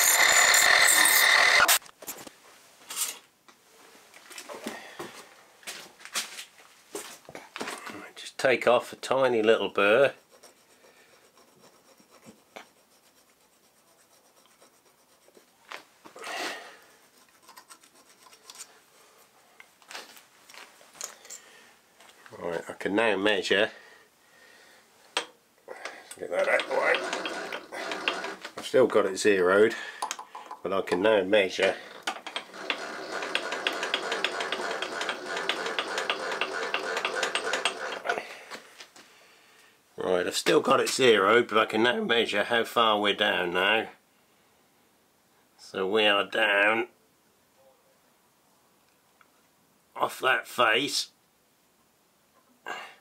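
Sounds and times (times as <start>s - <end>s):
milling machine running: 0.0s - 1.8s, 26.4s - 28.4s, 32.0s - 38.0s
hand scraping metal edge: 9.8s - 15.8s
rapid regular clicking: 26.4s - 28.5s, 31.9s - 38.1s.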